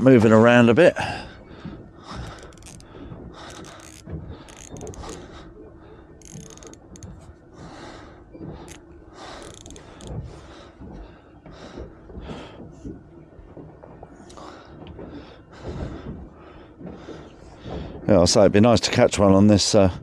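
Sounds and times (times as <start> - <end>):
fishing reel gears clicking: 2.2 - 2.9, 3.5 - 5.3, 6.2 - 7.2, 8.6 - 10.2.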